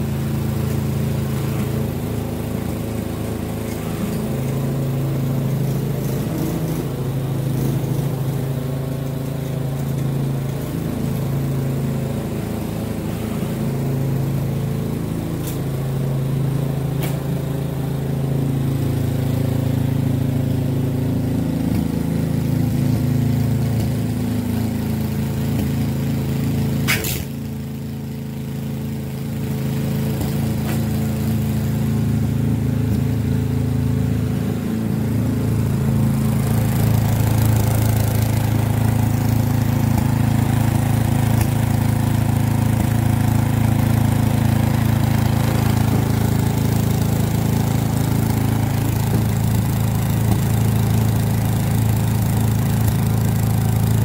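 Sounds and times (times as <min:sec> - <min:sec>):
snowblower engine running: 0:00.0 - 0:54.0
sharp click: 0:26.9 - 0:27.3.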